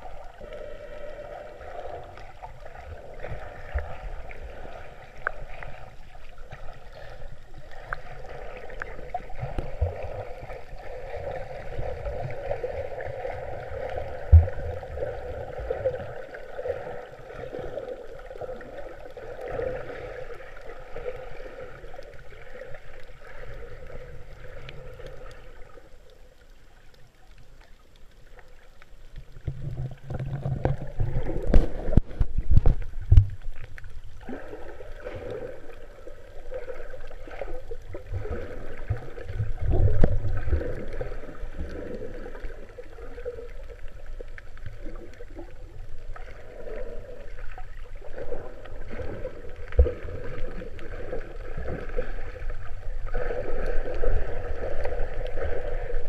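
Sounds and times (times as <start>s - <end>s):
muffled underwater wash: 0.0s - 56.0s
dull knocks and splashes: 29.5s - 33.3s.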